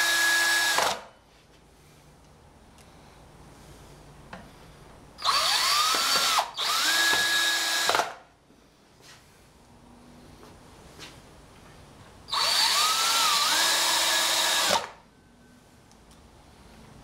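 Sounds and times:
cordless drill driving screws: 0:00.0 - 0:01.1, 0:05.2 - 0:08.2, 0:12.3 - 0:15.0.

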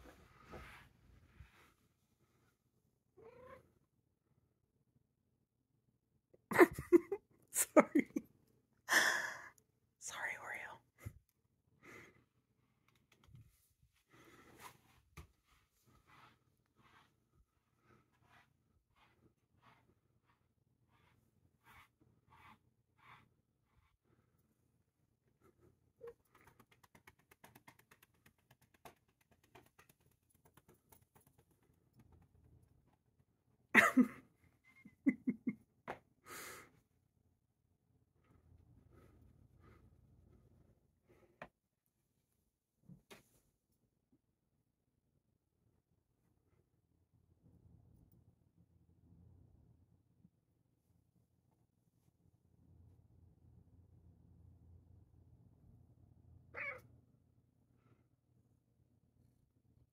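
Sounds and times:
cat meowing: 0:03.2 - 0:03.6, 0:56.5 - 0:56.8
hand patting cat's fur: 0:26.1 - 0:32.6.

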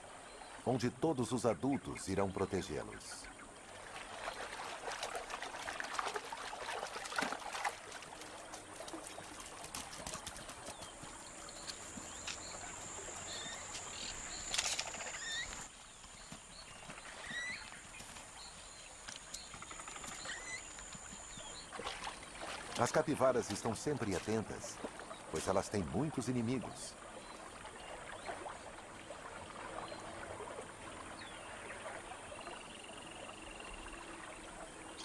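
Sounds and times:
water splashing and trickling: 0:00.0 - 0:35.0
bird chirps: 0:10.7 - 0:21.7.

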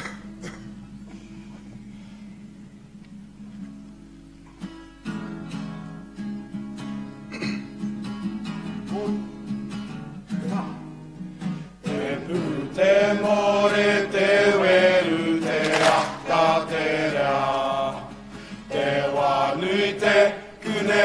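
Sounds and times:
acoustic guitar strumming: 0:00.0 - 0:21.0
people singing: 0:11.8 - 0:21.0.

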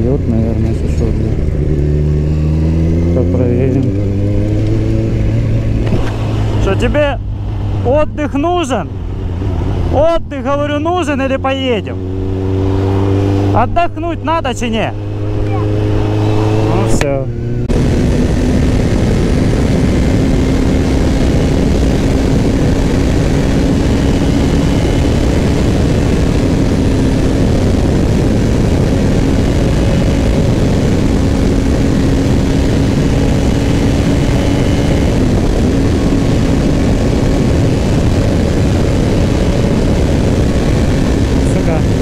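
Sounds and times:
motorcycle engine cruising: 0:00.0 - 0:42.0
wind noise on microphone: 0:03.9 - 0:07.9, 0:14.9 - 0:42.0.

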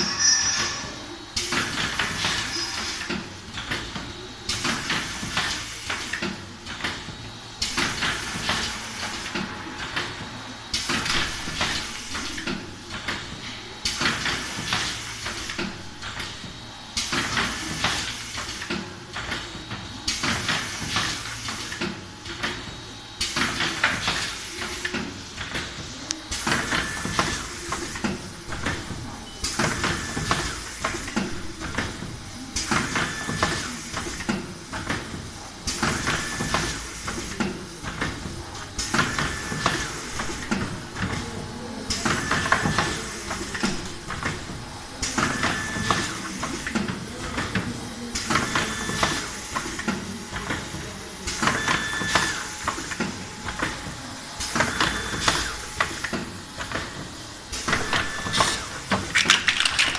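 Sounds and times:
machine hissing and clattering: 0:00.0 - 0:41.2, 0:54.4 - 0:59.9.

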